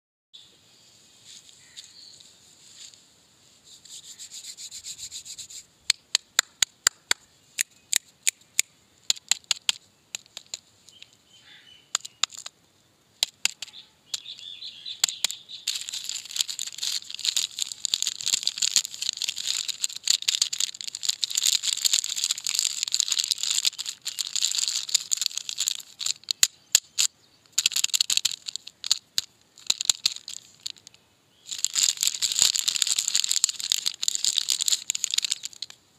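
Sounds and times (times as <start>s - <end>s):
sharp taps and clicks: 5.9s - 11.2s, 11.9s - 12.6s, 13.2s - 14.4s, 15.0s - 35.8s
plastic wrapper crinkling: 15.0s - 35.8s.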